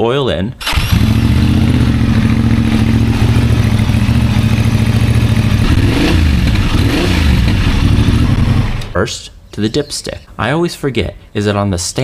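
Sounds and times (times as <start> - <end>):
motorcycle engine idling: 0.6 - 8.9.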